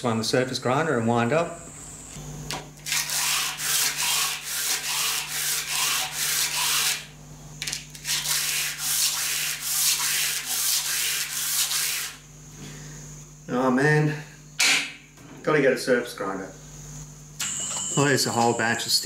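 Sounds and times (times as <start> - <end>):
steel block rubbing on abrasive sheet: 2.9 - 7.1, 8.0 - 12.2.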